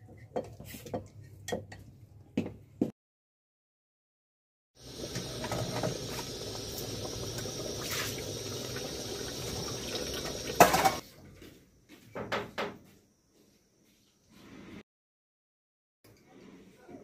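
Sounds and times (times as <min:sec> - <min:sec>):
soup bubbling in pot: 0:04.8 - 0:11.0.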